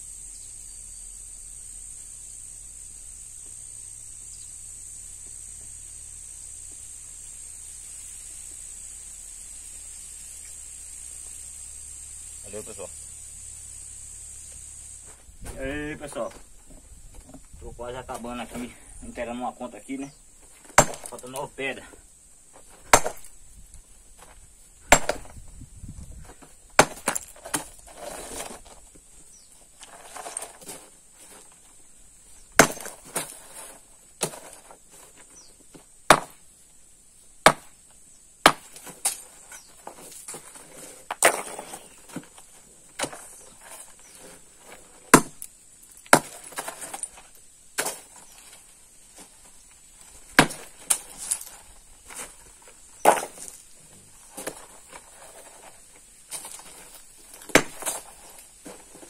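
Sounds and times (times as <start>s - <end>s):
hammer striking stone: 20.7s - 21.2s, 22.9s - 23.3s, 24.9s - 25.3s, 26.8s - 27.7s, 32.6s - 33.0s, 36.1s - 36.4s, 37.4s - 37.7s, 38.4s - 39.2s, 45.1s - 45.5s, 46.1s - 47.1s, 50.4s - 51.4s, 57.5s - 58.0s.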